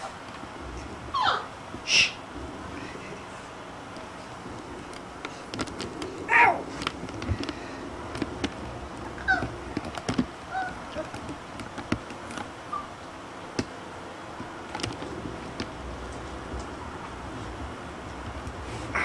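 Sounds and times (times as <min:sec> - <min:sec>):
puppies squeaking: 0:01.1 - 0:01.5, 0:09.2 - 0:09.5, 0:12.7 - 0:13.0.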